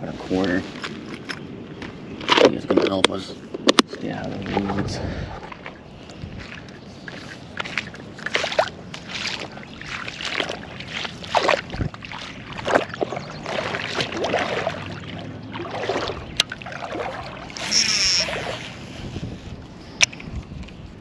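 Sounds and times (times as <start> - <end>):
high squeak: 17.6 - 18.4.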